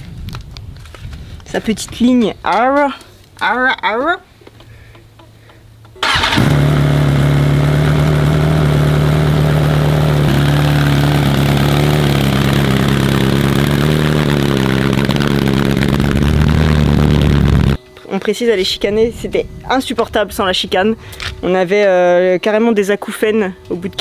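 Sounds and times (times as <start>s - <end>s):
motorcycle engine idling: 6.0s - 17.8s.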